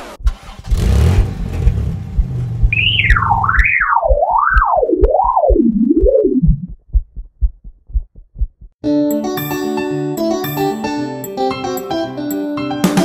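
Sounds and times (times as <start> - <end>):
low engine-like rumble: 0.2 - 3.5
low heartbeat-like thumps: 0.2 - 8.8
swooping electronic tone: 2.7 - 6.7.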